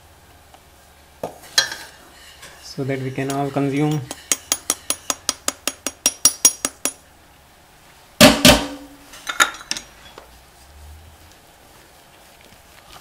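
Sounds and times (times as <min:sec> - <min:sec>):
whisk tapping metal sieve: 0:01.6 - 0:06.6
metal clatter with ring: 0:03.2 - 0:07.0.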